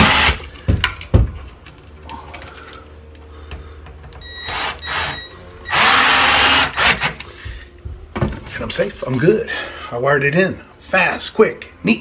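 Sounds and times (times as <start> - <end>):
cordless drill motor: 4.4 - 7.1.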